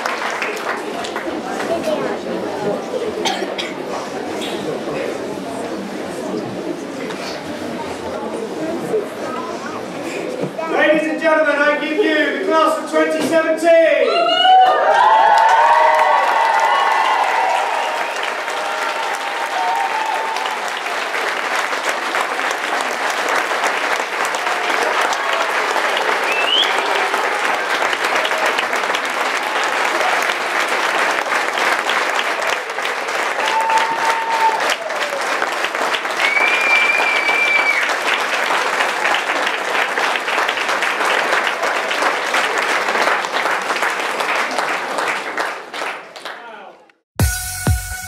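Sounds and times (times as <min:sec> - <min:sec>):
audience clapping: 0:00.0 - 0:02.8, 0:14.6 - 0:47.0.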